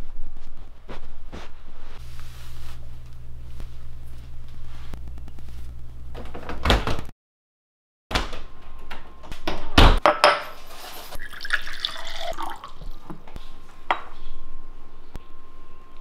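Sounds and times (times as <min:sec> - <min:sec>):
water running at a sink: 0:11.2 - 0:13.0.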